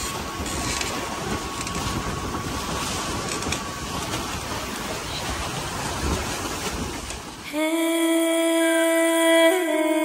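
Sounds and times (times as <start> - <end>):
wind on microphone: 0.0 - 7.5
water rushing past hulls: 0.0 - 10.0.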